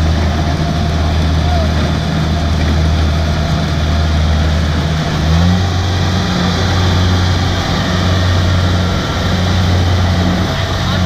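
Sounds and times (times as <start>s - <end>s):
combine harvester diesel engine: 0.0s - 11.0s.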